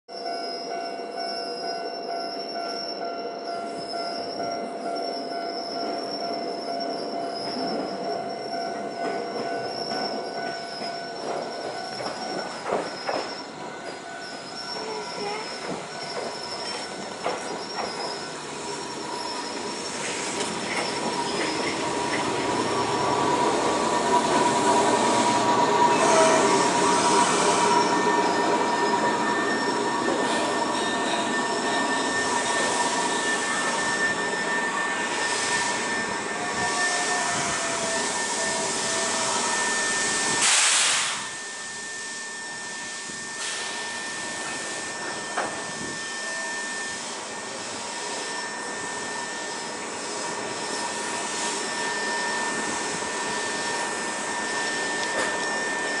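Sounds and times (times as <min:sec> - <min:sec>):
electric train slowing: 0:00.1 - 0:56.0
train humming: 0:00.3 - 0:56.0
air hiss burst: 0:40.1 - 0:41.4, 0:43.4 - 0:43.9.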